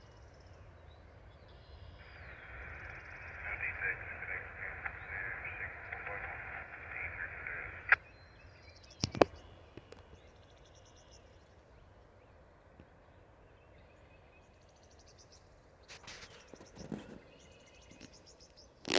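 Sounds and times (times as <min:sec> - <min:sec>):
faint birdsong trills: 0:00.0 - 0:18.9.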